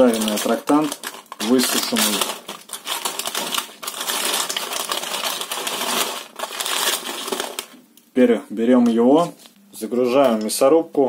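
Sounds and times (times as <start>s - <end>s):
baking paper crinkling: 0.0s - 7.8s
crackling crumbs being crunched: 0.0s - 7.8s.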